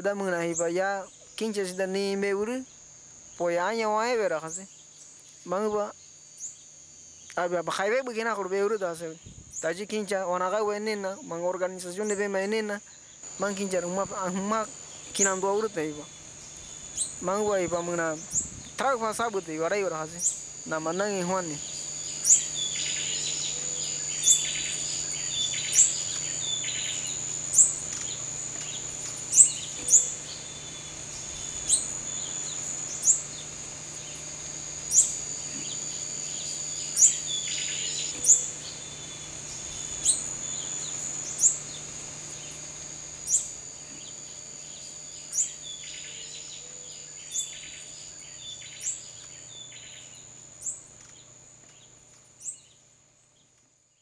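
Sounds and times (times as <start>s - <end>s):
high insect drone: 0.0s - 54.0s
bird calls: 10.4s - 54.0s
sharp repeating chirp: 21.4s - 33.5s, 34.9s - 41.8s.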